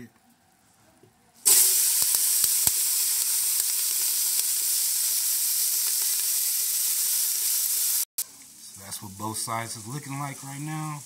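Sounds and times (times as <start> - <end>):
sharp pops: 1.4 - 4.7
vegetables sizzling in a pot: 1.4 - 11.0.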